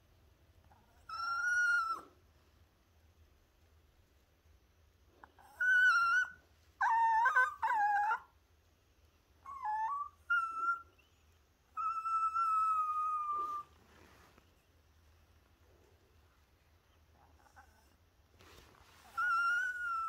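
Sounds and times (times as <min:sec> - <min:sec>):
dog whining: 0:00.6 - 0:02.3, 0:05.2 - 0:08.4, 0:09.4 - 0:13.8, 0:16.9 - 0:18.0, 0:18.8 - 0:20.0.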